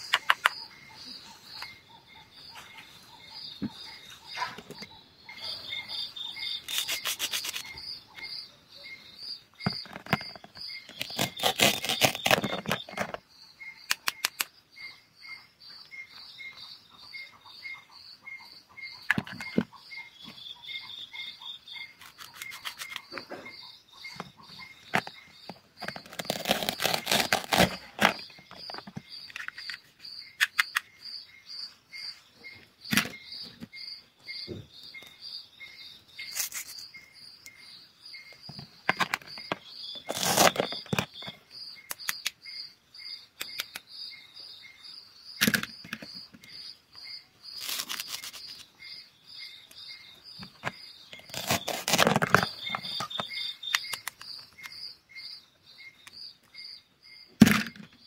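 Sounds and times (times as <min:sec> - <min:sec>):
crickets chirping: 0:00.0 - 0:58.0
plastic scraping rasps: 0:06.6 - 0:07.8, 0:09.6 - 0:13.2, 0:24.2 - 0:29.8, 0:38.5 - 0:41.4, 0:50.4 - 0:54.2.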